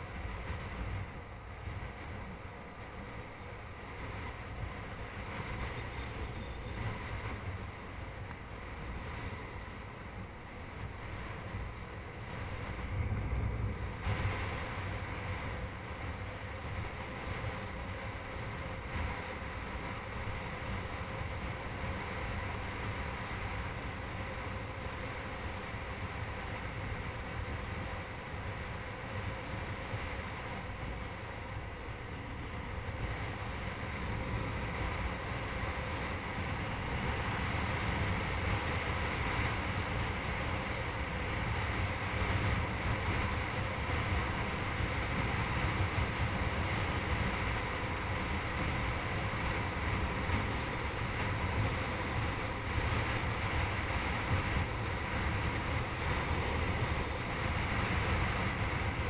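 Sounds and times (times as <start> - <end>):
wind rushing over microphone: 0.0 - 59.0.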